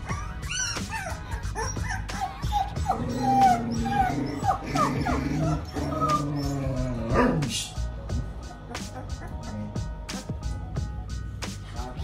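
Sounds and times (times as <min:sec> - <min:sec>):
puppy whimpering: 0:00.0 - 0:07.5, 0:08.6 - 0:10.3.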